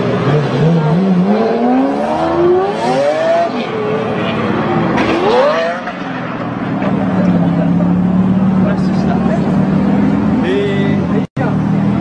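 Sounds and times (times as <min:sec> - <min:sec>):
sports car engines accelerating: 0:00.0 - 0:12.0.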